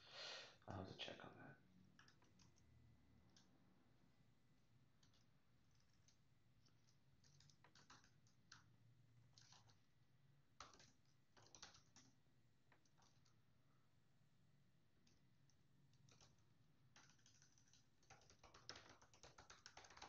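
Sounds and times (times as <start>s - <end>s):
keyboard keystrokes: 5.0s - 8.7s, 9.4s - 9.8s, 10.6s - 12.1s, 15.9s - 20.0s.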